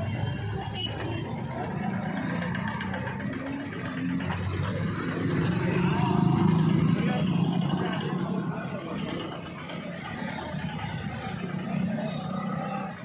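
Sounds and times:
cars and scooters passing: 0:00.0 - 0:13.0.

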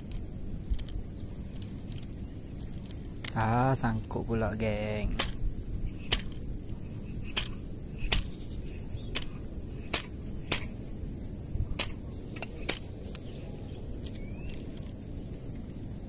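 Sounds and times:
low outdoor rumble: 0:00.0 - 0:16.0
fishing reel clicks and snaps: 0:05.1 - 0:05.4, 0:06.0 - 0:06.5, 0:07.2 - 0:08.4, 0:09.1 - 0:10.8.

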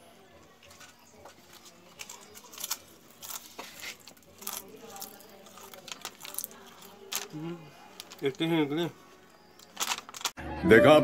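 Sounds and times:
crunching of slate pencil and chips: 0:00.6 - 0:08.6, 0:09.5 - 0:10.4.

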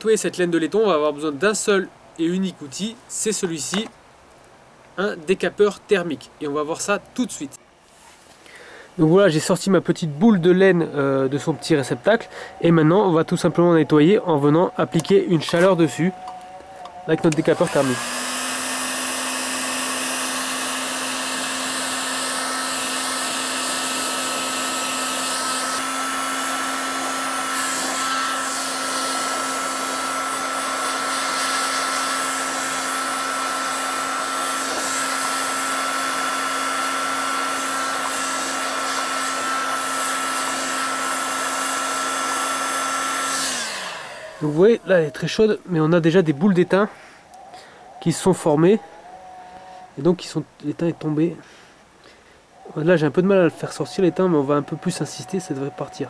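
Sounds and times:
heat gun blowing air: 0:14.9 - 0:45.2.

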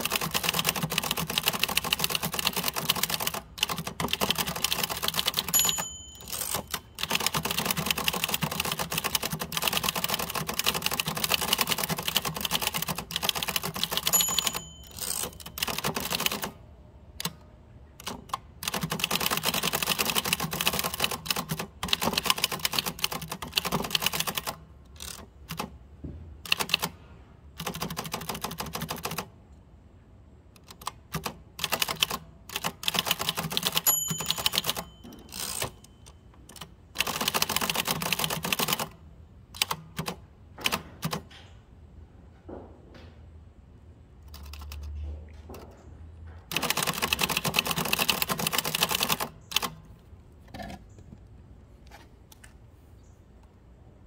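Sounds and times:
typewriter margin bell ringing: 0:00.0 - 0:16.5, 0:32.0 - 0:38.9
typewriter key strikes: 0:00.0 - 0:16.6, 0:18.0 - 0:25.7, 0:30.6 - 0:39.0, 0:46.5 - 0:49.8.

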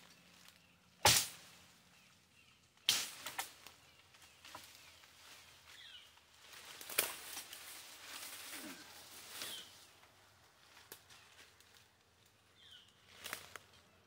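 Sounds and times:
leaves rustling: 0:00.0 - 0:14.0
sword chopping into branches: 0:01.0 - 0:01.5, 0:02.9 - 0:03.6.

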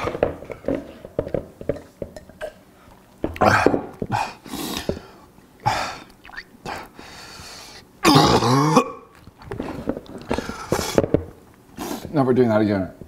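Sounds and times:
man retching groan: 0:03.3 - 0:04.4, 0:08.0 - 0:09.1
man coughing and clearing throat: 0:08.0 - 0:09.1.

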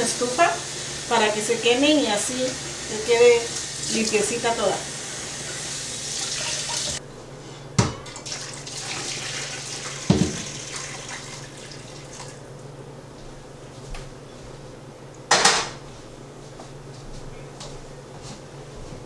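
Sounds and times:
kitchen faucet running: 0:00.0 - 0:07.0, 0:08.1 - 0:12.4
water poured and splashing: 0:05.3 - 0:07.0, 0:08.2 - 0:12.4.

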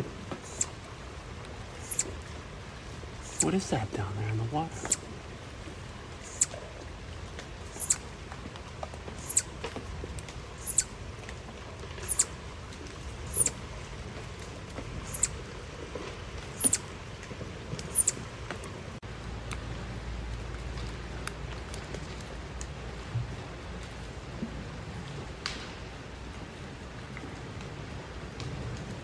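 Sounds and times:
chipmunk chip calls: 0:00.4 - 0:00.8, 0:01.8 - 0:02.2, 0:03.2 - 0:03.7, 0:04.7 - 0:05.1, 0:06.2 - 0:06.6, 0:07.7 - 0:08.1, 0:09.2 - 0:09.5, 0:10.6 - 0:10.9, 0:12.0 - 0:12.3, 0:13.2 - 0:13.6, 0:15.0 - 0:15.4, 0:16.5 - 0:16.9, 0:17.8 - 0:18.2.

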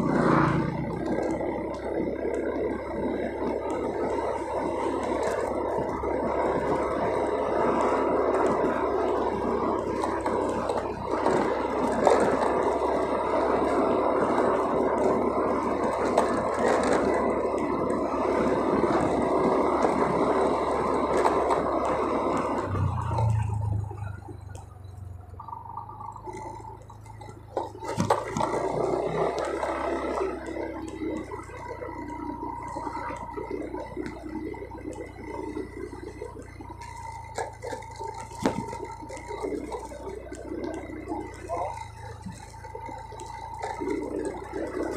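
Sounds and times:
motorcycle riding: 0:00.0 - 0:44.9
tyres on wet paving: 0:00.0 - 0:44.9.

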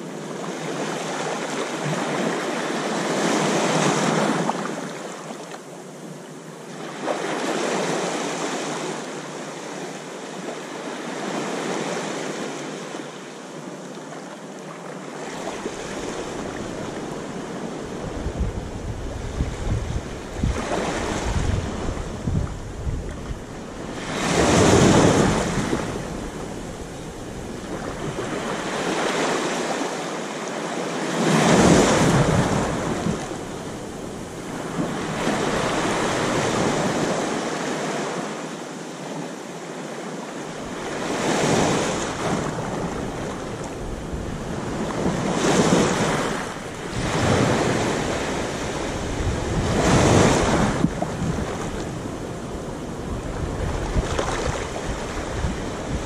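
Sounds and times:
small waves lapping on sand: 0:00.0 - 0:56.0
wind rumble on microphone: 0:15.2 - 0:29.8, 0:31.1 - 0:38.0, 0:40.5 - 0:56.0.

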